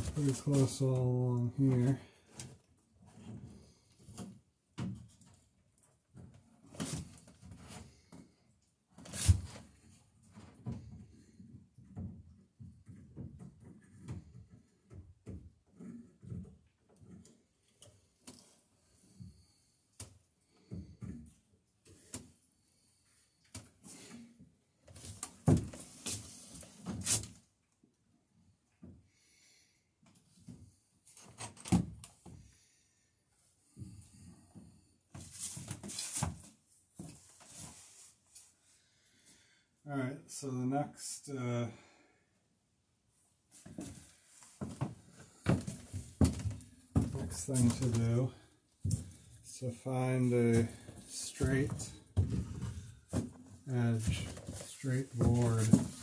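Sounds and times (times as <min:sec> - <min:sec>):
knocks and scrapes of handling wood: 0:00.0 - 0:05.5, 0:06.1 - 0:08.4, 0:09.0 - 0:22.4, 0:23.5 - 0:27.5, 0:33.7 - 0:39.4, 0:43.5 - 0:56.0
rustling of wood and tools: 0:00.0 - 0:08.4, 0:09.0 - 0:27.5, 0:33.7 - 0:39.5, 0:43.5 - 0:56.0.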